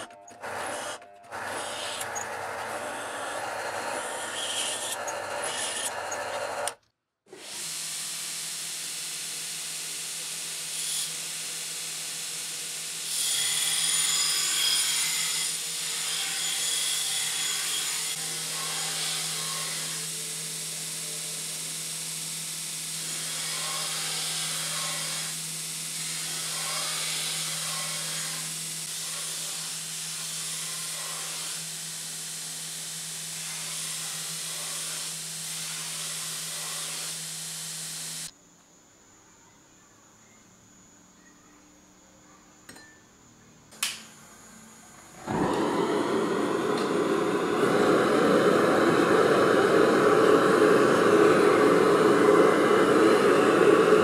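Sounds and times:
belt grinder grinding steel: 0.0 - 6.8, 13.0 - 20.2, 22.9 - 38.3
drill press boring into steel: 0.0 - 6.8.

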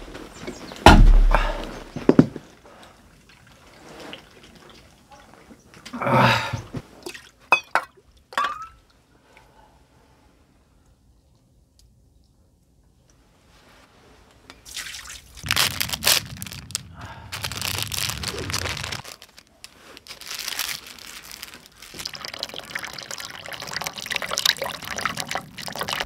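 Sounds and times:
water dripping and trickling: 14.6 - 19.1, 21.4 - 26.0
plastic wrapper crinkling: 15.4 - 23.6.

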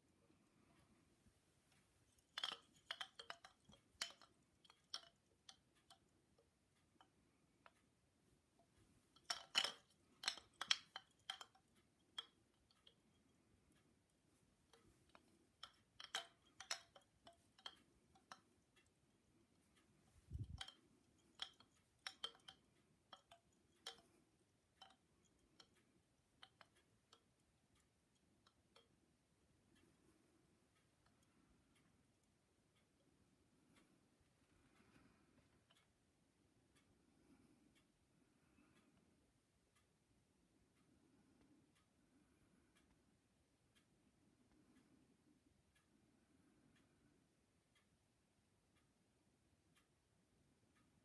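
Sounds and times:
bamboo wind chime clacking: 2.1 - 6.1, 9.1 - 13.3, 14.7 - 18.5, 20.2 - 24.2, 24.8 - 25.8.

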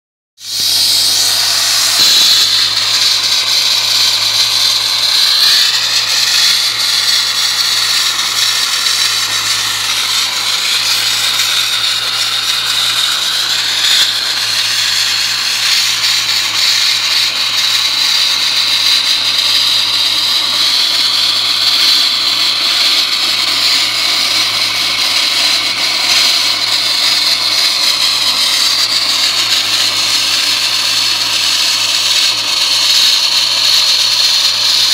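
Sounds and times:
blasting nozzle hissing: 0.4 - 34.9.

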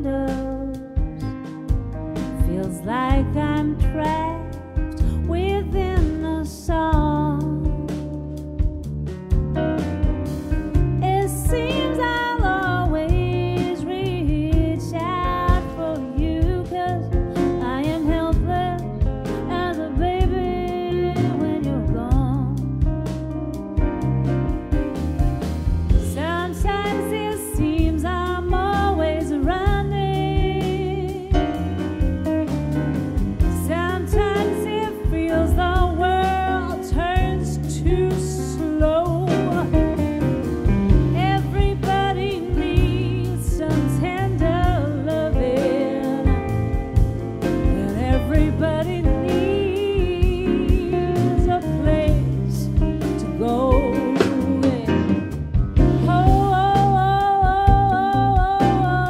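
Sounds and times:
woman singing: 0.0 - 1.2, 2.3 - 8.8, 11.0 - 22.9, 26.0 - 31.8, 33.4 - 40.2, 41.0 - 46.9, 47.6 - 59.0
bass: 0.0 - 59.0
drums: 0.0 - 59.0
grand piano: 0.0 - 59.0
electric guitar: 38.9 - 58.8.

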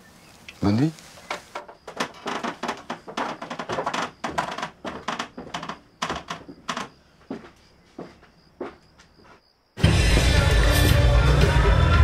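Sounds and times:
sharp taps and knocks: 1.3 - 7.5.

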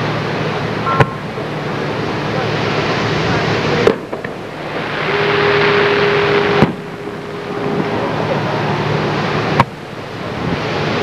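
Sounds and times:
faint steady tone: 0.0 - 11.0
steady rushing noise: 0.0 - 11.0
distant fireworks booming: 3.7 - 10.2.

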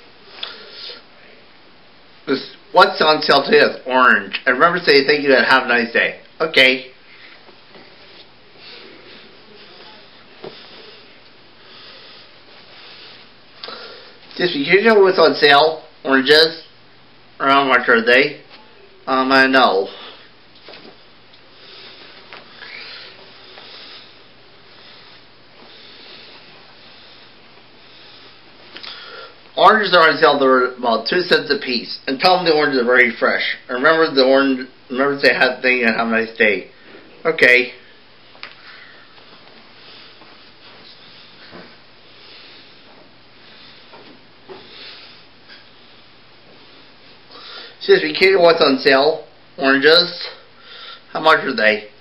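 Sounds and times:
steady hiss: 0.0 - 52.0
faint rustling and rubbing: 7.1 - 11.2, 38.2 - 47.3.

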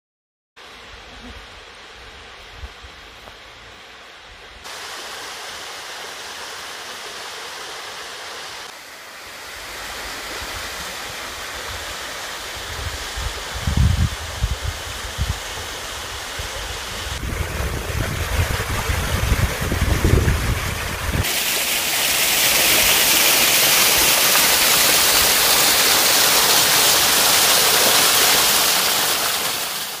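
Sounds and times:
waterfall splashing over rocks: 4.6 - 30.0
low rumble: 17.1 - 21.2.

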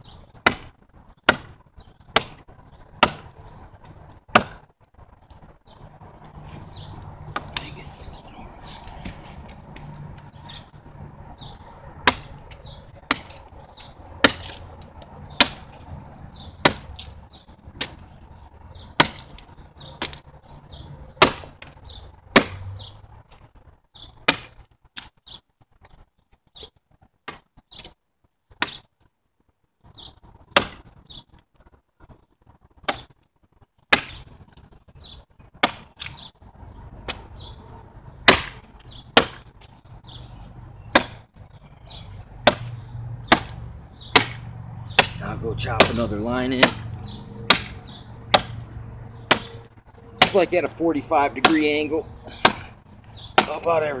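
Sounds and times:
machete chopping wood: 0.4 - 3.4, 4.3 - 4.7, 7.3 - 7.7, 12.0 - 14.6, 15.4 - 15.8, 16.6 - 17.2, 17.8 - 18.1, 19.0 - 20.3, 21.2 - 22.7, 24.2 - 25.1, 27.2 - 27.9, 28.6 - 28.9, 30.5 - 31.0, 32.8 - 33.1, 33.9 - 34.2, 35.6 - 36.2, 37.1 - 37.3, 38.2 - 39.5, 40.9 - 41.3, 42.4 - 46.9, 47.5 - 48.7, 49.3 - 49.6, 50.2 - 50.5, 51.4 - 53.8.

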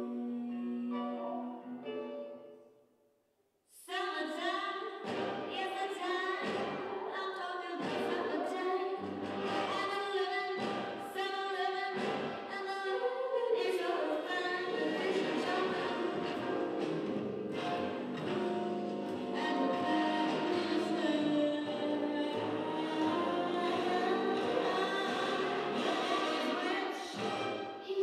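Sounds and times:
song with singing: 0.0 - 2.5, 3.9 - 28.0
recorded music: 4.0 - 13.0, 13.6 - 28.0.

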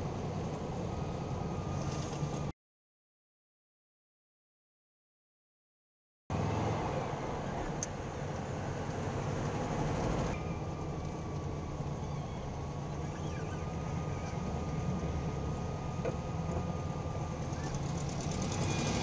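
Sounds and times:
road noise: 0.0 - 2.5, 6.3 - 19.0
car engine running: 7.1 - 19.0
faint steady whine: 7.4 - 19.0.

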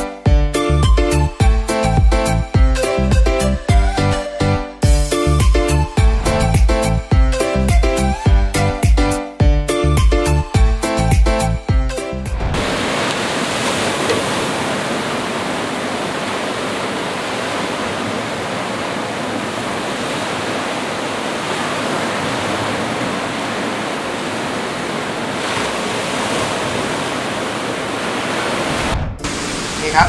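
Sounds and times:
small waves breaking on beach: 12.6 - 30.0.

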